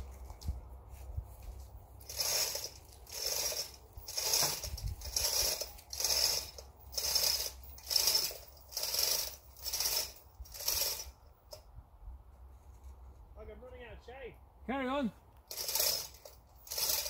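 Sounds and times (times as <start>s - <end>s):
hand ratchet clicking: 2.0s - 11.6s, 15.5s - 17.0s.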